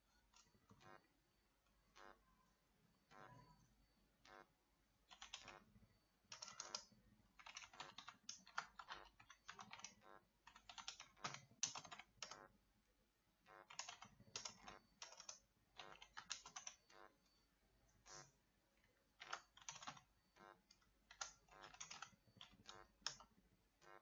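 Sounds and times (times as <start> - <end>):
typing on keyboard: 5.0 - 5.6, 6.3 - 12.4, 13.6 - 17.1, 19.2 - 23.3.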